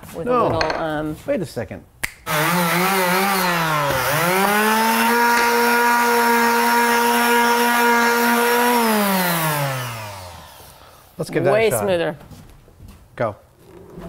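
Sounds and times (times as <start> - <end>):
power sander humming: 2.3 - 11.2.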